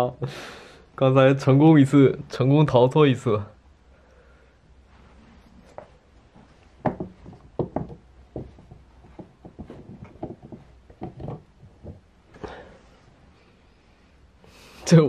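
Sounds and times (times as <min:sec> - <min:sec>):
plastic cat flap knocking: 0:06.8 - 0:12.0.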